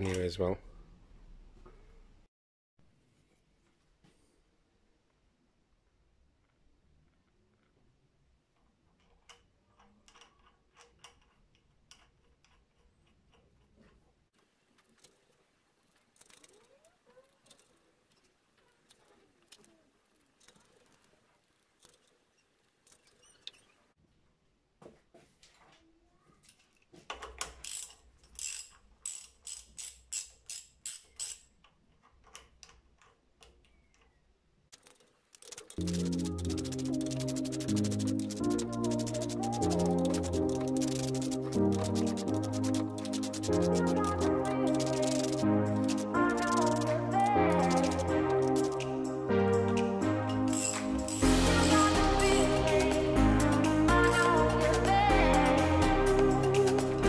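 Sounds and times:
metallic clicks and taps: 34.8 - 48.9.

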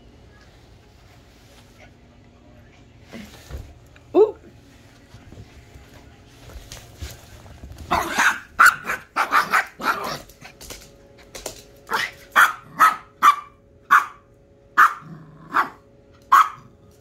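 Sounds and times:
small dog barking: 7.9 - 10.2, 11.9 - 16.7.

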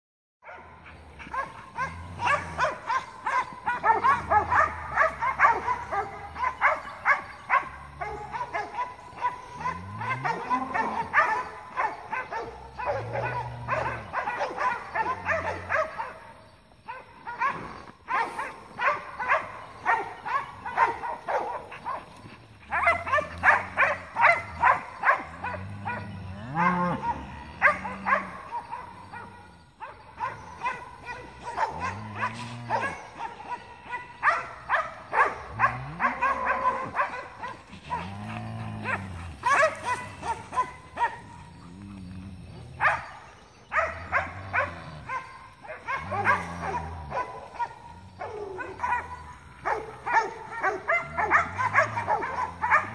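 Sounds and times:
dogs baying: 0.4 - 52.9
cattle mooing and bawling: 9.4 - 11.2, 12.7 - 15.4, 24.5 - 28.3, 31.2 - 34.0, 37.7 - 42.8, 44.3 - 47.7.

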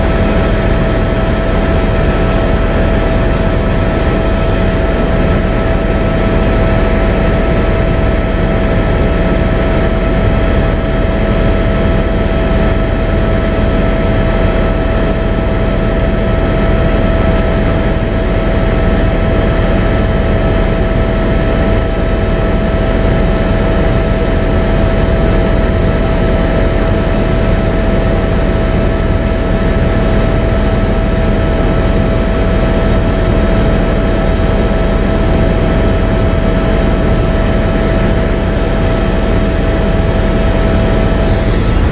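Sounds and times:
aircraft engine drone: 0.0 - 41.9
constant whine: 0.0 - 41.9
rushing air: 40.7 - 41.9.

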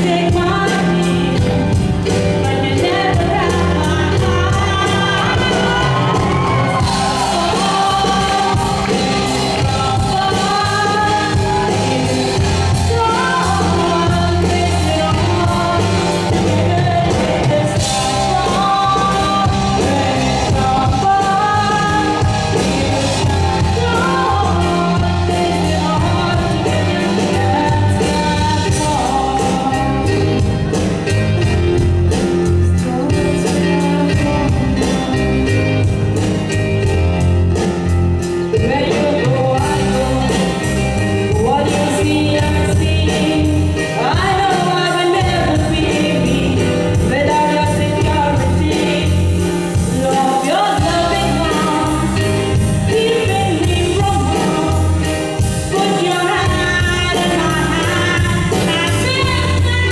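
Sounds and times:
woman singing: 0.0 - 37.0, 38.2 - 59.9
live band playing ballad: 0.0 - 59.9.

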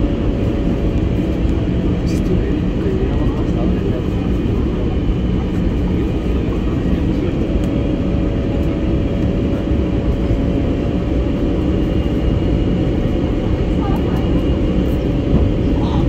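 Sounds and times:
aircraft engine and airflow rumble: 0.0 - 16.0.

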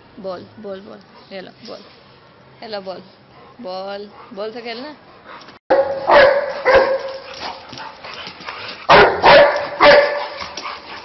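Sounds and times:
dog barking: 5.7 - 7.3, 8.9 - 10.4.

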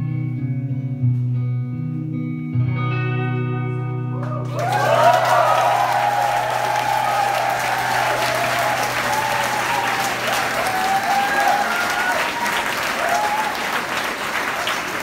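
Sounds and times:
audience applauding: 4.2 - 15.0
scattered shouts: 4.5 - 13.7.

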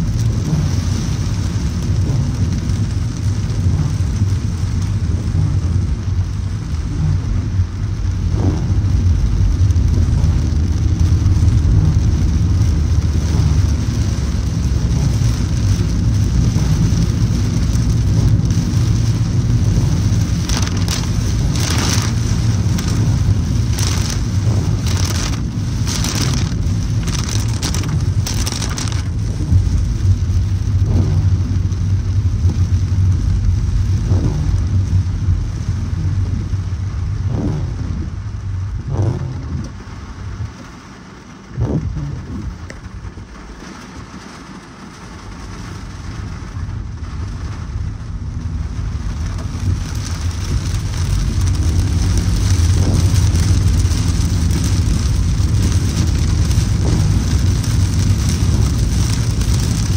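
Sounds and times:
car engine rumble: 0.0 - 59.9
rain and wet tyres hissing: 0.0 - 59.9.

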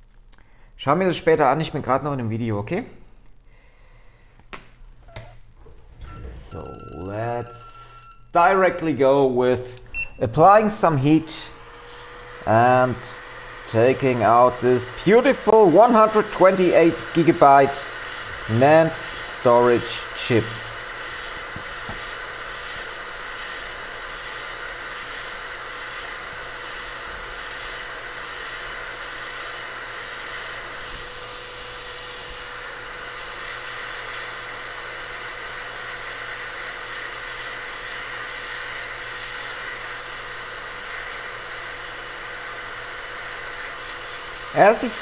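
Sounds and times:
steady hum: 0.0 - 24.4
hot air station blowing: 10.4 - 45.0.

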